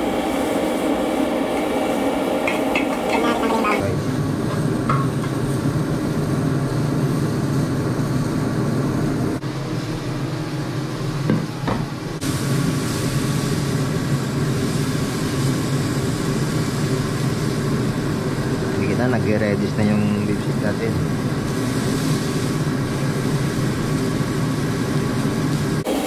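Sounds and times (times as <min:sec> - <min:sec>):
steak sizzling in a frying pan: 0:01.6 - 0:07.8, 0:12.2 - 0:18.8, 0:21.2 - 0:26.0.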